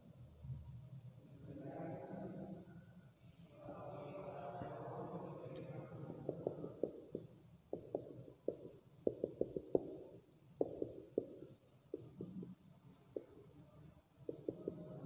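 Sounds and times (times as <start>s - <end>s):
marker ticking on whiteboard: 6.1s - 12.6s, 13.2s - 13.5s, 14.3s - 15.0s.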